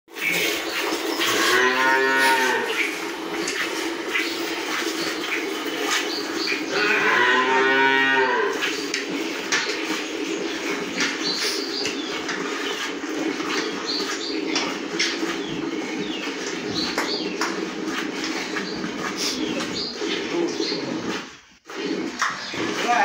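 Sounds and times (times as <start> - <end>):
cow mooing: 1.2 - 2.9, 6.7 - 8.6.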